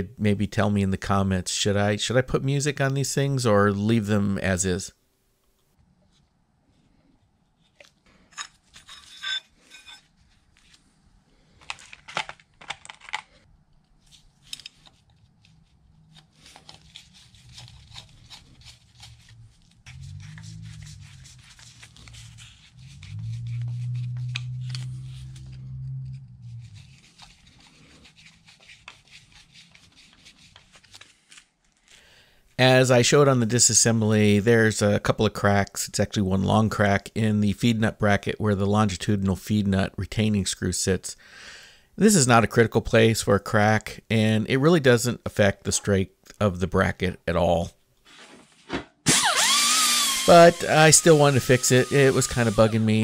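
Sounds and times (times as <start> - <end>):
low hum: 19.2 - 27.3
screwdriver scraping screws: 49.1 - 52.9.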